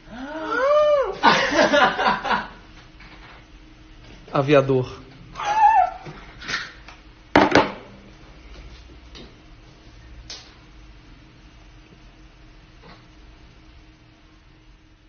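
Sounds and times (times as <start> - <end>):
high vocal cry: 0.1 - 1.2, 5.4 - 6.2.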